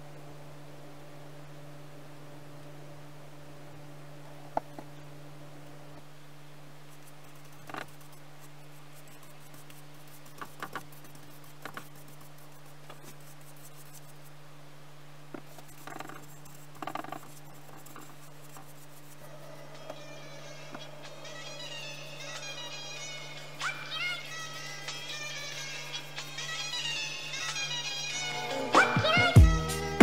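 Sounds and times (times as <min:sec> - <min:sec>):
steady low hum: 0:00.0 - 0:30.0
brush strokes on wood: 0:06.8 - 0:14.4, 0:15.3 - 0:29.2.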